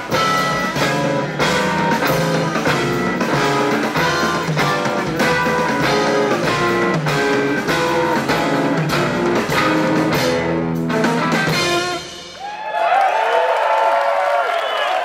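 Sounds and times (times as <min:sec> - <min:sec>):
jazz band playing: 0:00.0 - 0:12.4
audience cheering: 0:12.2 - 0:15.0.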